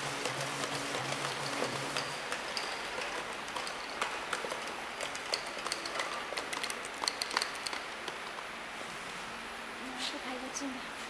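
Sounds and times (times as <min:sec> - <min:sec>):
labeling machine running: 0:00.0 - 0:07.8.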